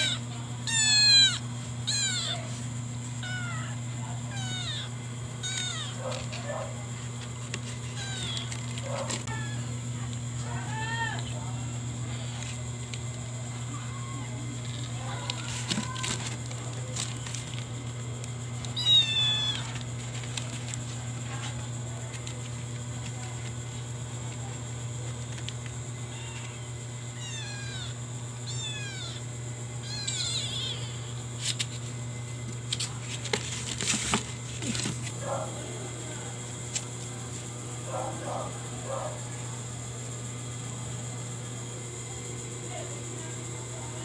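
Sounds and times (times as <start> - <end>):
kitten meowing: 0.0 - 2.6, 3.2 - 6.0, 7.9 - 8.6, 18.8 - 19.8, 26.1 - 26.6, 27.2 - 31.2
cat scrabbling in cardboard box: 33.2 - 35.1.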